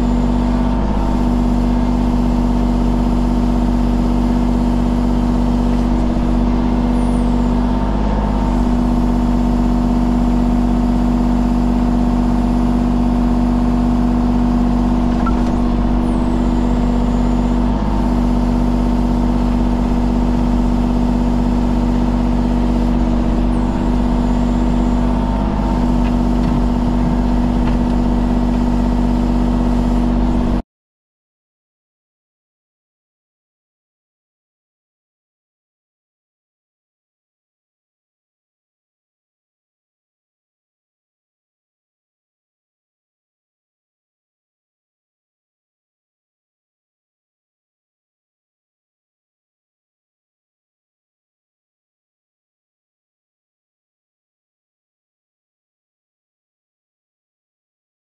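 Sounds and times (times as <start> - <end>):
engine running steadily: 0.0 - 30.6.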